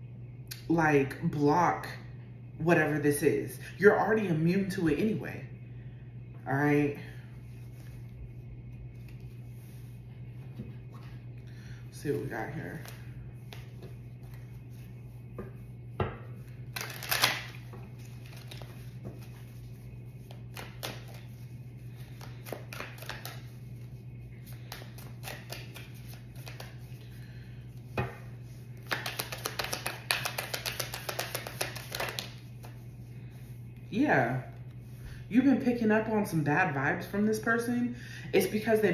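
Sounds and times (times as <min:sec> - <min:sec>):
steady low hum: 0:00.0 - 0:38.9
cards being shuffled: 0:12.7 - 0:15.5, 0:16.4 - 0:27.0, 0:28.0 - 0:32.8.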